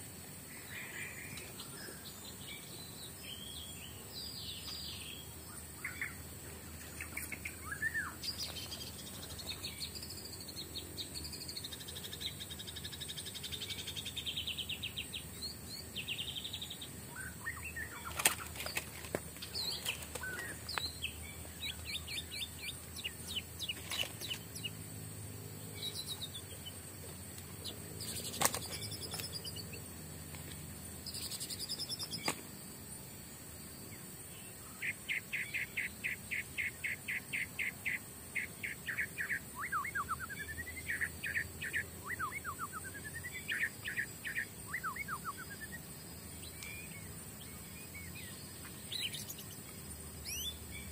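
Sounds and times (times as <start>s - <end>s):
birds chirping and trilling: 0.0s - 32.4s, 33.6s - 50.9s.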